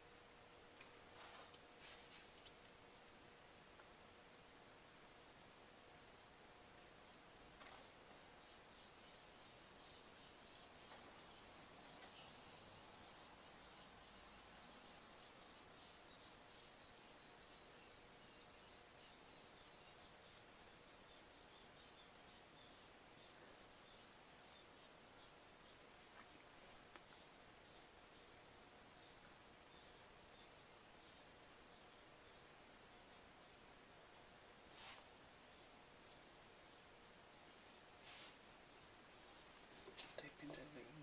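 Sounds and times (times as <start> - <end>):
insects chirring: 7.1 - 41.0.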